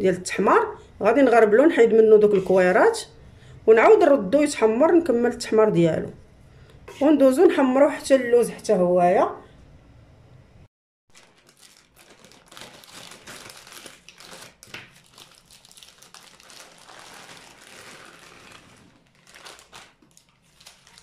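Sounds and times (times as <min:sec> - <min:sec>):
plastic bag crinkling: 0:11.1 - 0:21.0.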